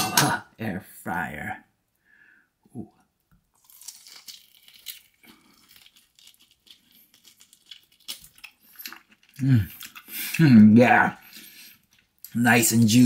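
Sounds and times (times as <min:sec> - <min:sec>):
ribs tearing and crackling: 0:03.5 - 0:13.0.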